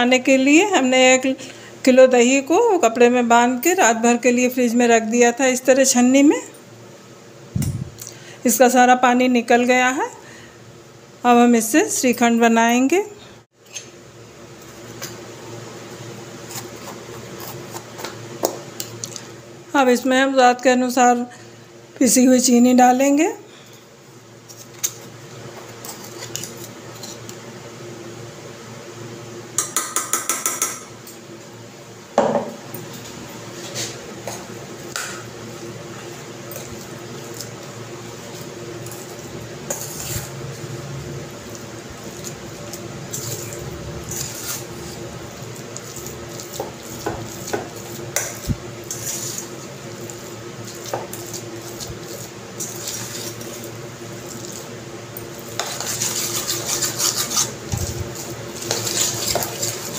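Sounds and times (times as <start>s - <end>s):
spoon scraping metal bowl: 55.4s - 59.9s.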